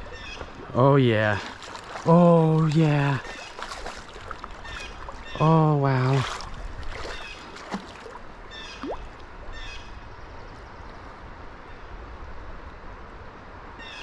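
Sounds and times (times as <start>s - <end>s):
stream water rushing: 0.0s - 10.4s.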